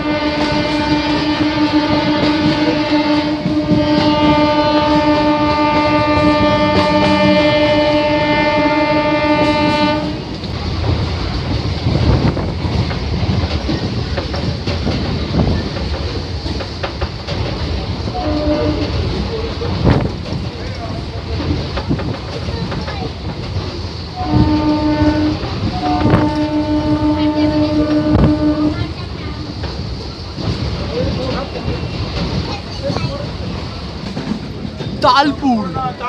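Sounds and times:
train horn blast: 0.0 - 10.4, 18.1 - 19.2, 24.2 - 29.0
train rumble and clickety-clack: 0.0 - 36.0.

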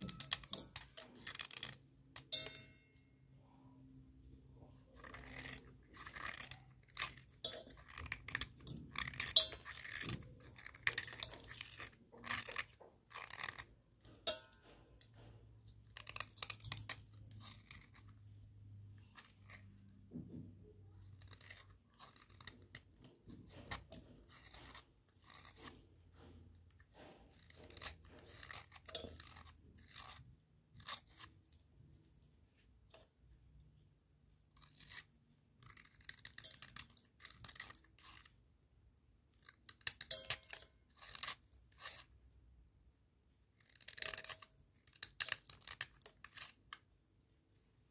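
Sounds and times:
slate pencil crunching and snapping: 4.9 - 15.3, 15.9 - 19.8, 21.0 - 31.4, 34.5 - 38.4, 39.4 - 42.1, 43.6 - 46.8.

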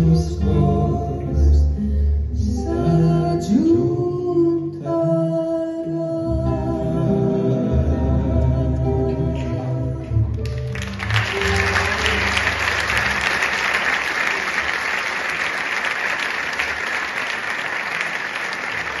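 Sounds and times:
audience applause: 10.4 - 19.0.

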